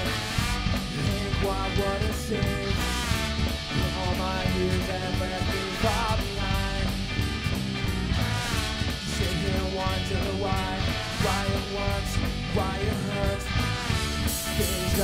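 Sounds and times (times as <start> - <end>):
bass guitar: 0.0 - 15.0
drum kit: 0.0 - 15.0
electric guitars: 0.0 - 15.0
trumpet and trombone horns: 0.0 - 15.0.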